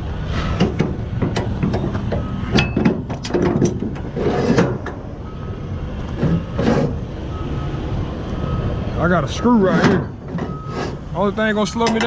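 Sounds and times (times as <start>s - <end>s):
low engine rumble: 0.0s - 12.0s
metal strap hardware clanking: 0.5s - 5.0s, 11.7s - 12.0s.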